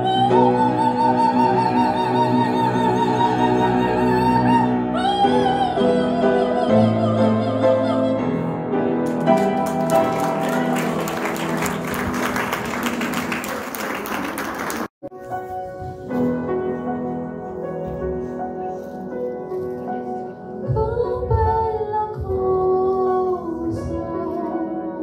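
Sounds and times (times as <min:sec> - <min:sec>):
woman singing with vibrato: 0:00.0 - 0:08.6
piano accompaniment: 0:00.0 - 0:25.0
audience applause: 0:09.1 - 0:15.0.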